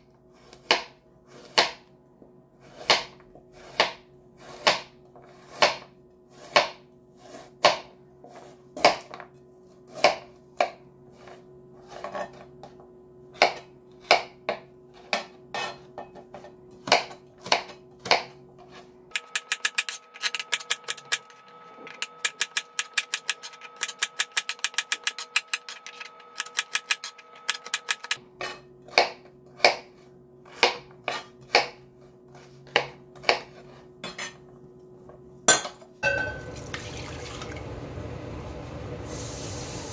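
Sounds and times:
knife cutting carrots on board: 0:00.4 - 0:01.8, 0:02.6 - 0:09.2, 0:09.9 - 0:12.5, 0:13.4 - 0:34.4.

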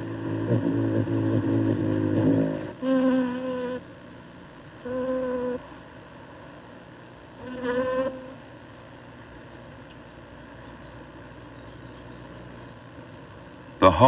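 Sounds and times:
bumblebee buzzing in flight: 0:00.0 - 0:03.9, 0:04.8 - 0:05.7, 0:07.4 - 0:08.4.

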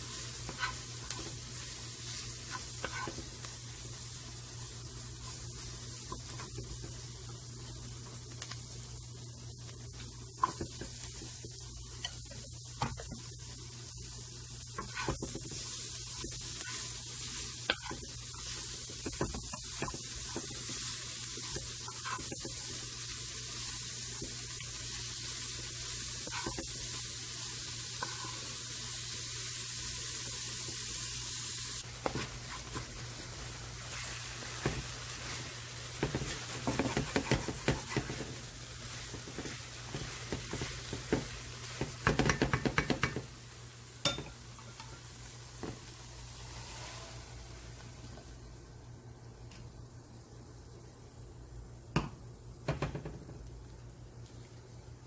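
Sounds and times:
vegetables sizzling in a pan: 0:00.0 - 0:55.0
wooden spatula scraping and tapping: 0:00.1 - 0:01.4, 0:02.1 - 0:03.3, 0:10.4 - 0:11.4, 0:14.7 - 0:16.9, 0:17.6 - 0:22.8, 0:26.2 - 0:26.8, 0:33.9 - 0:38.4, 0:39.0 - 0:43.3.

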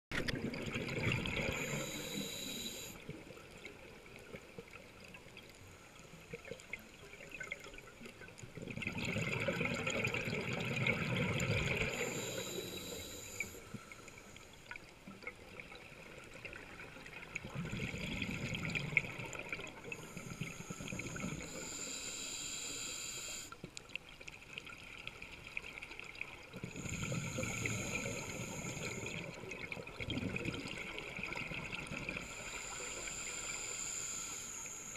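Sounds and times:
exhaled bubbles underwater: 0:00.1 - 0:05.4, 0:06.2 - 0:13.8, 0:14.7 - 0:21.9, 0:24.5 - 0:34.9
regulator inhale hiss: 0:01.4 - 0:03.0, 0:11.6 - 0:14.6, 0:19.7 - 0:23.6, 0:26.6 - 0:29.4, 0:32.1 - 0:34.9.

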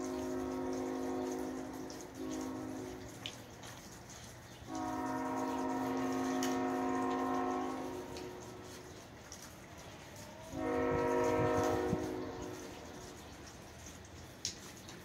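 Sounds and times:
locomotive air horn blasts: 0:00.0 - 0:03.2, 0:04.7 - 0:08.7, 0:10.5 - 0:13.0.

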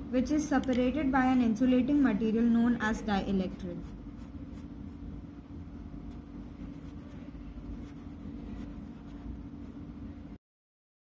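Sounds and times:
steady low hum: 0:00.0 - 0:10.4
marker scratching on paper: 0:03.7 - 0:05.0, 0:05.8 - 0:09.8.

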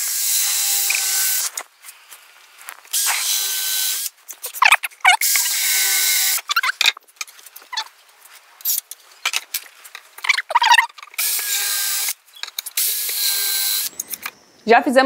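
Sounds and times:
cordless drill whine: 0:00.0 - 0:01.6, 0:05.2 - 0:06.4, 0:11.2 - 0:12.2, 0:12.8 - 0:14.4
short high squeaks: 0:04.3 - 0:06.9, 0:07.6 - 0:07.9, 0:10.2 - 0:12.6.

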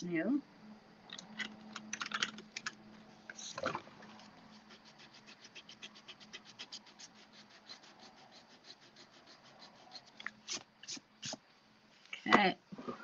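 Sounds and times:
tool scratching along card: 0:04.2 - 0:11.4.

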